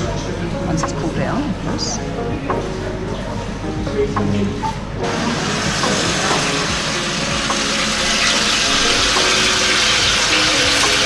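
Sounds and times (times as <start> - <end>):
meat sizzling under a grill: 5.0 - 11.0.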